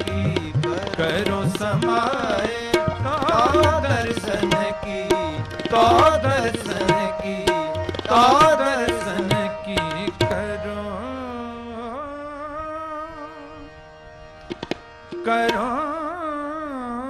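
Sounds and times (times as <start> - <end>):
tabla strokes: 0.0 - 10.7, 14.5 - 15.7
harmonium: 0.0 - 17.0.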